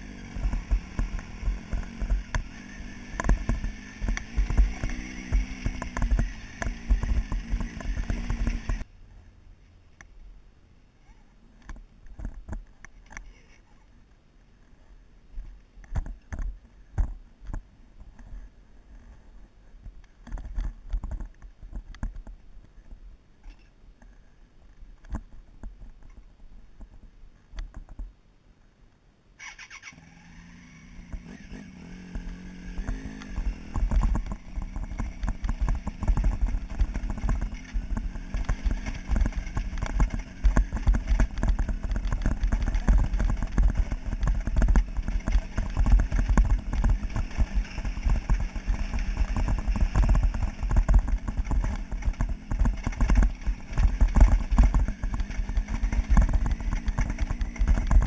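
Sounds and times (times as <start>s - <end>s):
motorcycle engine running: 0.0s - 8.9s, 30.0s - 58.0s
tyres rumbling on gravel: 0.0s - 8.9s, 30.9s - 58.0s.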